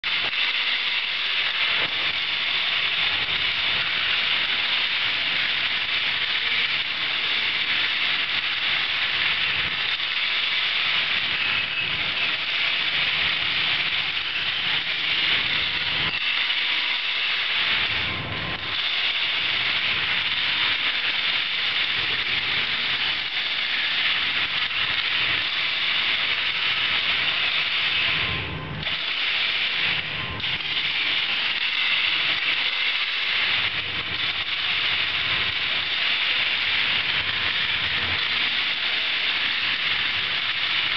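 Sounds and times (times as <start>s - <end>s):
stones tumbling in rotating drums: 0.0s - 40.9s.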